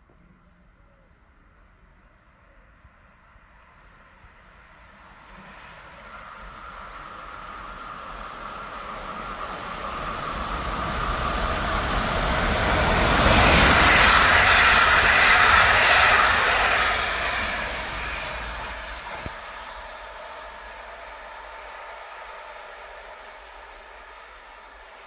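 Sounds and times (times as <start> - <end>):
train passing on rails: 1.6 - 25.0
thin high whine: 5.2 - 25.0.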